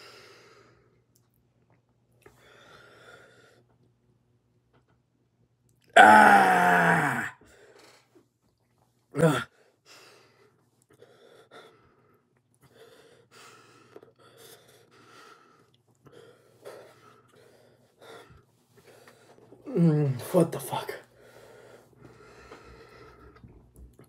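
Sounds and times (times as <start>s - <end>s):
person crying out: 6.0s - 7.4s.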